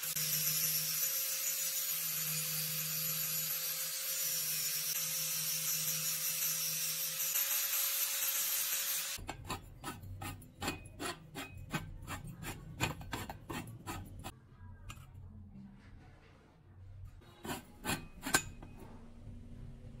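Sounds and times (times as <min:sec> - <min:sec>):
angle grinder on steel pipe: 0:00.0 - 0:14.3, 0:17.4 - 0:18.7.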